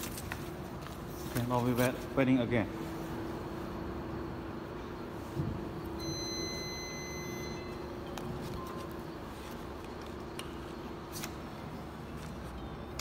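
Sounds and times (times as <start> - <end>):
high steady tone: 5.8 - 9.8.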